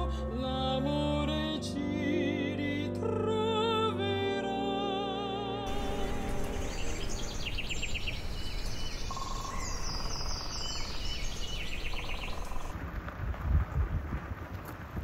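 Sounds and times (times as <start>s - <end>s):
songbirds singing: 5.7s - 12.7s.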